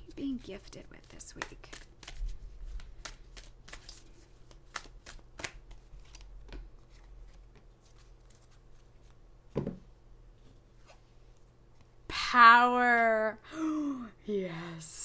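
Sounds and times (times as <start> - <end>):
cards being shuffled: 0.3 - 9.2.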